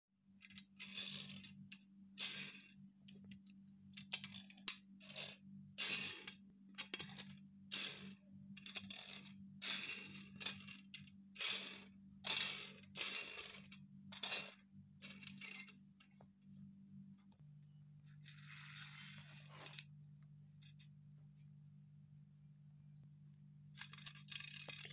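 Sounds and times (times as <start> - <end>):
plastic toy cars rattling: 0.4 - 1.6, 4.0 - 15.7, 23.8 - 24.9.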